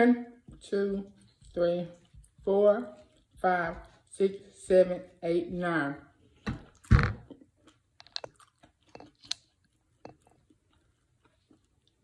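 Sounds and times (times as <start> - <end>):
person chewing: 6.3 - 12.0.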